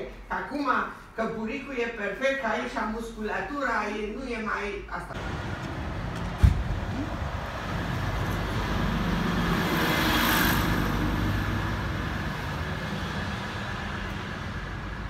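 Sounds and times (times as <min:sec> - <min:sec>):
bus engine rumble: 0:05.2 - 0:15.0.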